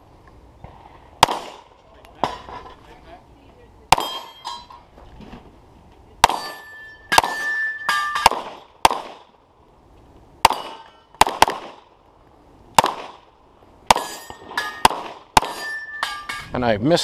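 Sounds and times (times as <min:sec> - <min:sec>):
pistol shots: 0:01.2 - 0:01.7, 0:06.2 - 0:09.3, 0:10.4 - 0:11.9, 0:12.8 - 0:13.3, 0:13.9 - 0:15.7
metallic ringing: 0:04.0 - 0:04.9, 0:06.3 - 0:08.3, 0:14.0 - 0:14.9, 0:15.5 - 0:16.6.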